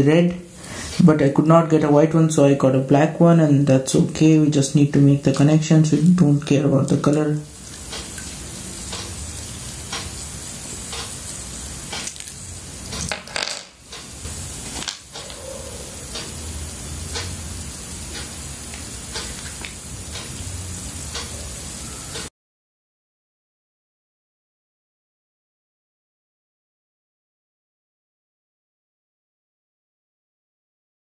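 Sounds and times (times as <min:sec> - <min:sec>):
steady hiss: 0:00.1 - 0:22.3.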